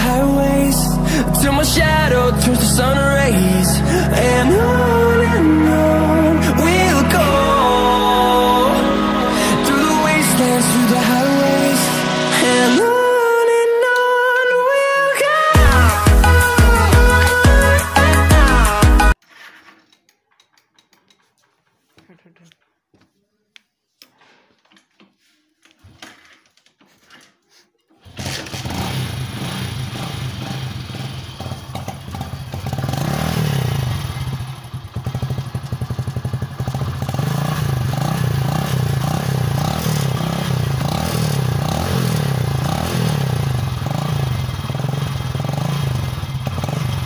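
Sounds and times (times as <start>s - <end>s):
motorcycle engine revving: 28.0s - 47.0s.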